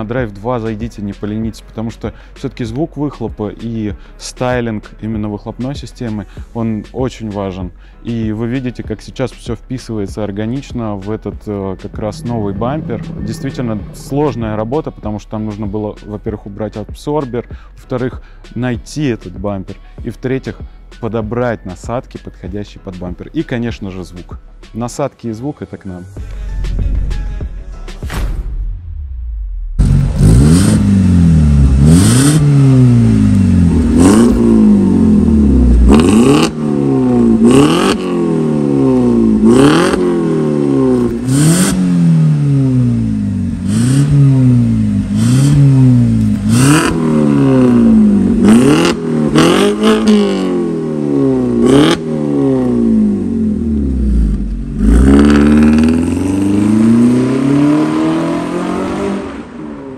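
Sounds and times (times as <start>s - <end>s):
exhaust cracks: 11.2s - 15.4s, 29.5s - 58.1s
car engine revving: 11.8s - 15.0s, 29.0s - 59.9s.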